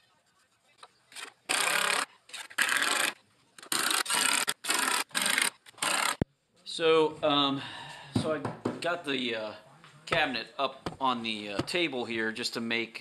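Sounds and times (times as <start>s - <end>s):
cordless drill driving screws: 1.2s - 6.2s.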